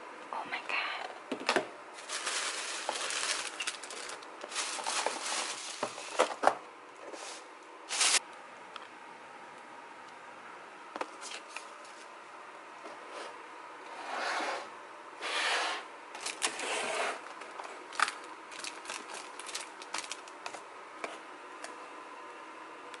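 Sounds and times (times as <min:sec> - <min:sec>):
plastic containers rustling: 0:01.3 - 0:08.2, 0:16.2 - 0:20.6.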